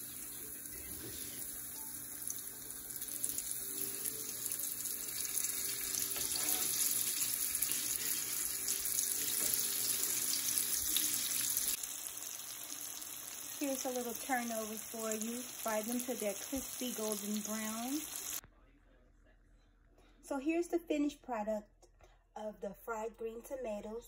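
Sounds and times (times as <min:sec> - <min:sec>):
tomato slices sizzling in oil: 0:00.0 - 0:18.4.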